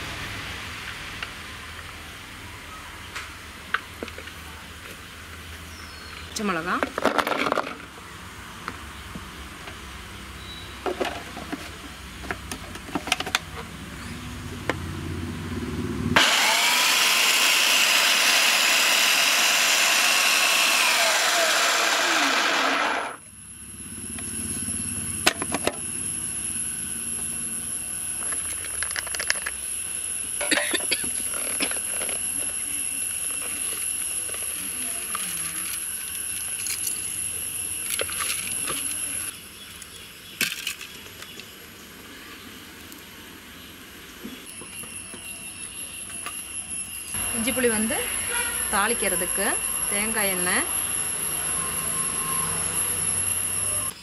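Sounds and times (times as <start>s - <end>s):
food processor motor whirring: 16.2s - 23.2s.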